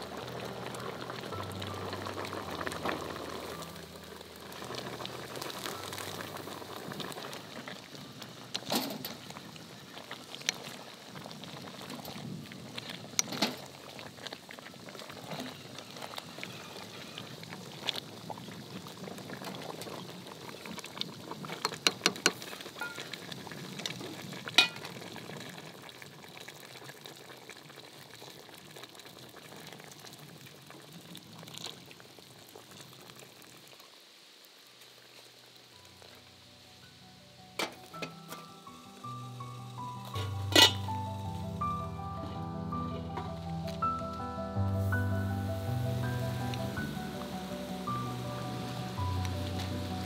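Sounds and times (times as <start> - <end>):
soft music: 0.0 - 7.4, 35.7 - 50.0
stew bubbling in a pot: 0.0 - 36.4, 37.6 - 42.4.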